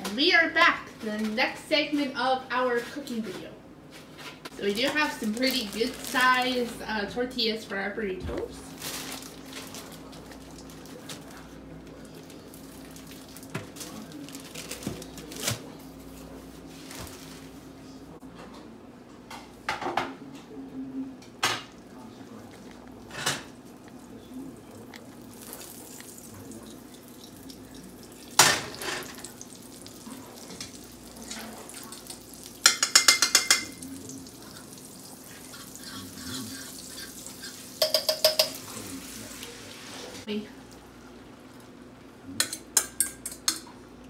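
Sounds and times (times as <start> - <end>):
metallic tapping on bowl: 32.6 - 33.8, 37.8 - 38.6
pan and utensils knocking: 32.6 - 33.8, 37.8 - 38.7.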